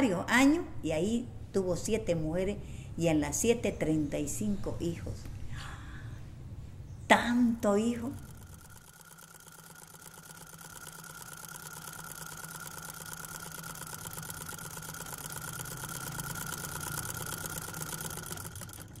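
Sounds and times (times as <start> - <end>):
machine rattling and whining: 7.9 - 19.0.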